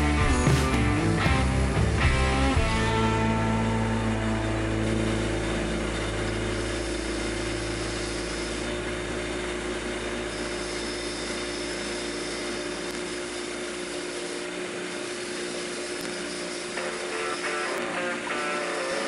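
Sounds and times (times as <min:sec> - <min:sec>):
bench grinder grinding metal: 0:00.0 - 0:19.0.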